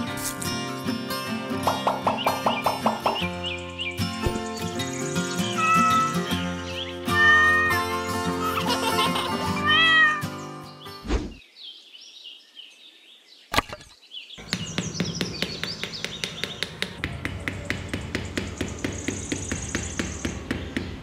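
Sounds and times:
background music: 0.0s - 10.8s
cartoon cat meow: 5.6s - 6.2s, 7.0s - 7.9s, 9.5s - 10.4s
hammer tapping wooden stake: 14.4s - 21.0s.

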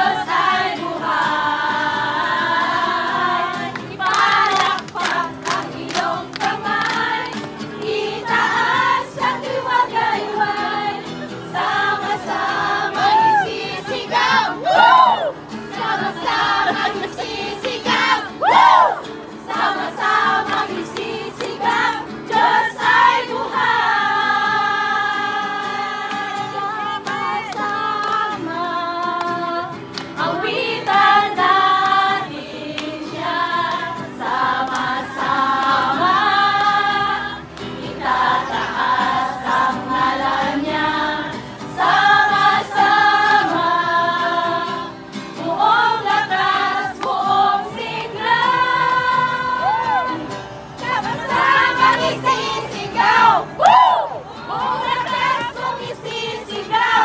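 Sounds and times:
women singing together: 0.0s - 57.0s
hand clapping: 3.7s - 8.0s, 34.6s - 35.9s
strummed acoustic guitar: 15.3s - 53.6s.

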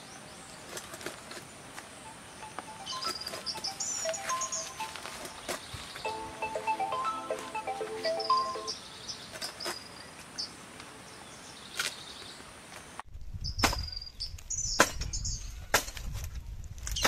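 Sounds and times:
birds chirping: 0.0s - 12.4s
wind rumbling on microphone: 13.1s - 17.0s
pole striking dry palm fronds: 13.6s - 13.9s, 14.8s - 15.1s, 15.7s - 17.0s.

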